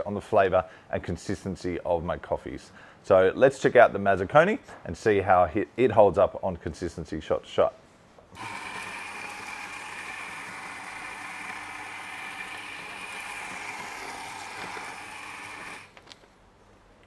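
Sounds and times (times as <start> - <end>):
coffee grinder whining: 8.4 - 16.0.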